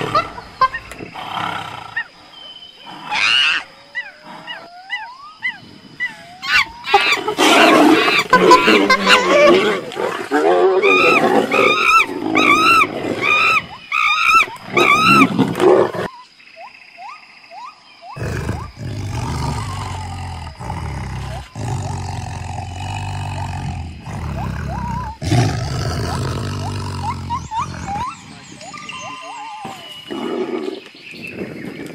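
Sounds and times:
tiger growling low: 18.2s - 28.4s.

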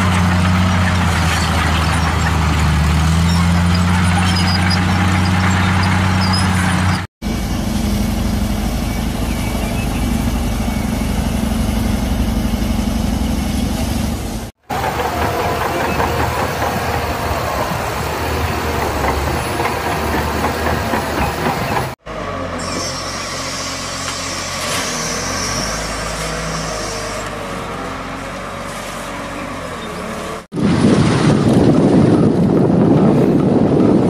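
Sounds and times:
bulldozer engine running: 0.0s - 34.0s
loud rough wheel loader driving: 0.0s - 34.0s
wheel loader engine with hiss: 7.2s - 30.4s.

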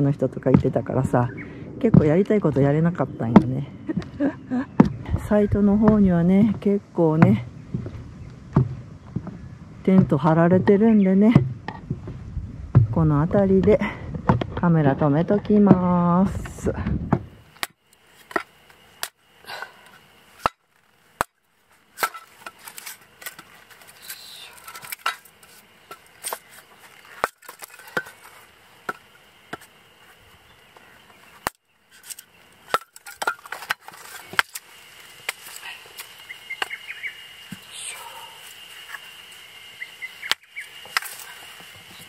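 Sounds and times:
hatchet splitting wood: 20.4s - 20.6s, 31.4s - 34.6s.

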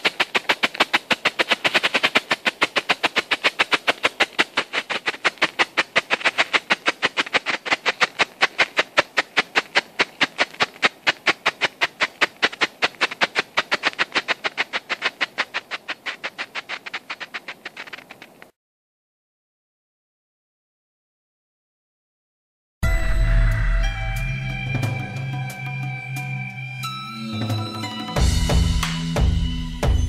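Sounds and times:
flare popping rhythmically: 0.0s - 18.2s.

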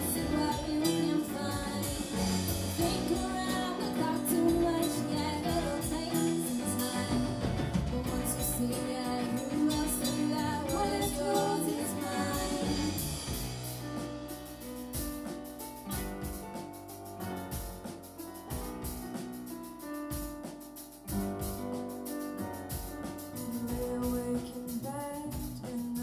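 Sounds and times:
women singing: 0.0s - 13.2s
electric guitars: 0.0s - 19.4s
drum kit hits: 0.0s - 26.0s.

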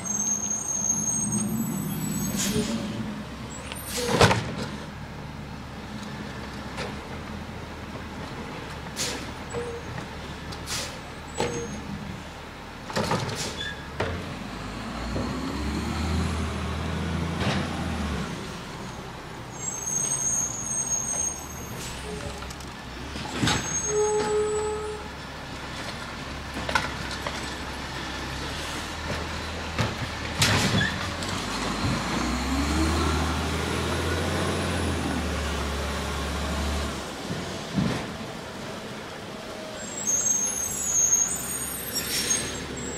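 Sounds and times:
air brake hisses: 2.2s - 2.9s, 10.7s - 11.0s, 40.4s - 42.7s
garbage truck engine revving: 29.7s - 37.7s.

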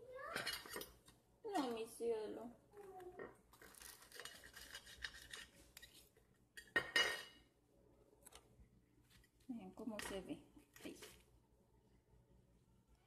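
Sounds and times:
knife and fork cutting crispy food: 3.5s - 6.1s
metal clinking on plate: 6.6s - 7.4s.

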